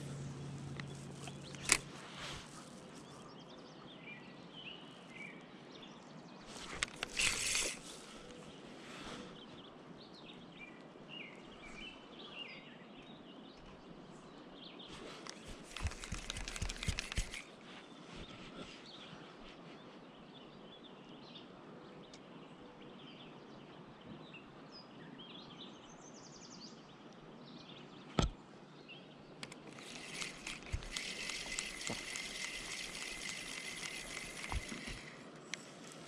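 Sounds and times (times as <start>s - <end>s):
calm river: 28.4s - 36.0s.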